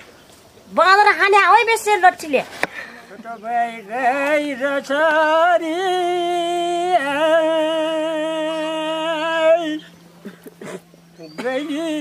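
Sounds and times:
elderly man singing: 3.1 - 12.0.

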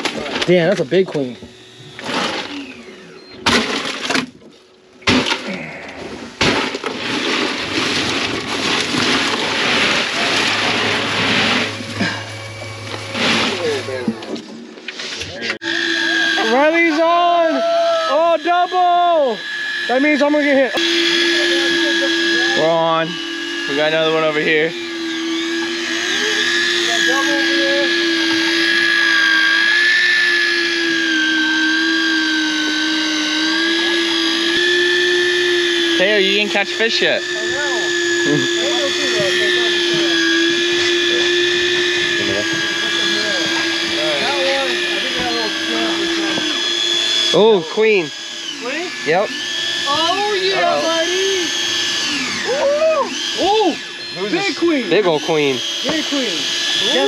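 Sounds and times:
fishing reel motor whining: 0.0 - 4.3, 7.0 - 14.4, 15.3 - 57.0
crushed ice rattling and crunching: 2.0 - 2.7, 3.5 - 4.4, 5.0 - 14.1.

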